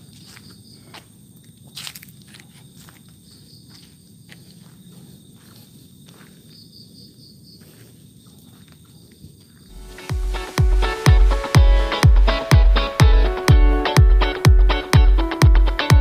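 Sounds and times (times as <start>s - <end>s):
high insect hum: 0.0s - 11.5s
insects chirping in pulses: 0.0s - 12.0s.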